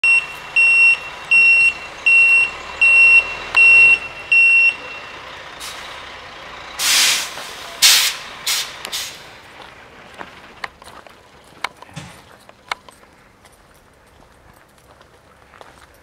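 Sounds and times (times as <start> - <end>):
truck backup alarm beeping: 0.0 - 9.3
faint engine rumble: 0.0 - 16.0
loud air brake hisses: 5.6 - 6.0, 6.8 - 9.3.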